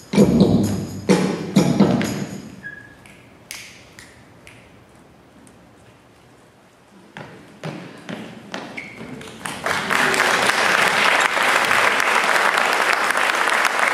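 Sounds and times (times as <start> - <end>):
audience applause: 9.2 - 13.9.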